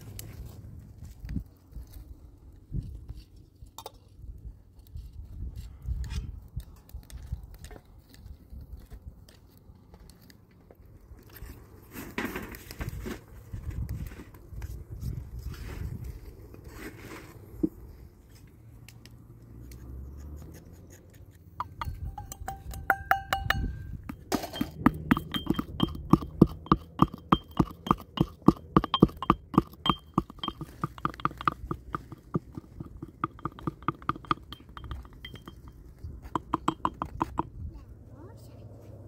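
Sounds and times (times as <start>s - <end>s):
pestle pounding in glass mortar: 21.5s - 37.5s.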